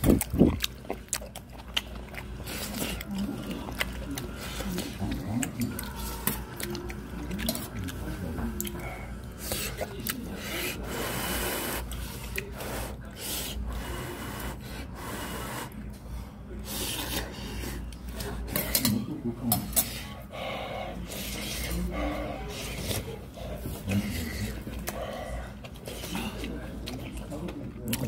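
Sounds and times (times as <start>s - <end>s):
person slurping and chewing: 0.0s - 13.0s.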